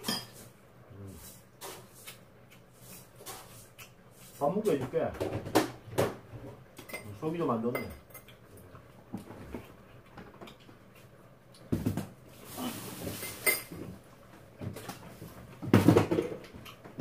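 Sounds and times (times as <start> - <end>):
mouth noises of eating: 0.8 - 4.4
chopsticks clinking against bowls: 6.8 - 8.6.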